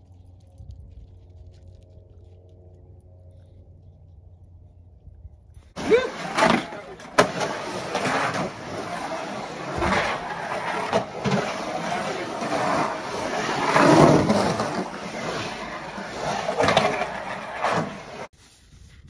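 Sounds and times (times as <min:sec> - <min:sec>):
skateboard wheels rolling on concrete: 0:05.6 - 0:19.0
skateboard clacks: 0:05.8 - 0:18.3.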